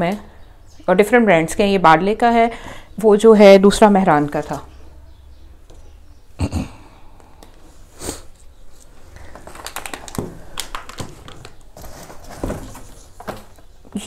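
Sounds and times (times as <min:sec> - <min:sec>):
packaging crinkling and rustling: 0:08.7 - 0:14.0.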